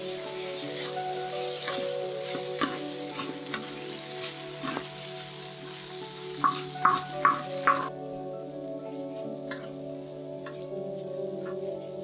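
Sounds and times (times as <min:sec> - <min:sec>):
food sizzling in a pan: 0:00.0 - 0:12.0
wooden spatulas scraping iron pan: 0:00.4 - 0:05.1.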